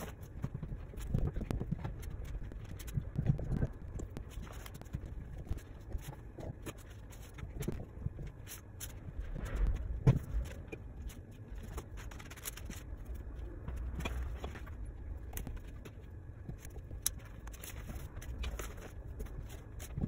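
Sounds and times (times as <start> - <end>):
low rumble: 0.0 - 20.0.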